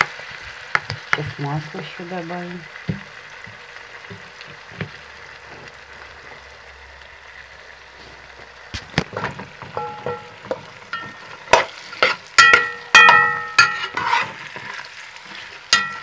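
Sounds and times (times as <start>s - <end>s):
vegetables sizzling in oil: 0.0s - 16.0s
metal spoon clanking on pot: 9.2s - 14.2s, 15.7s - 16.0s.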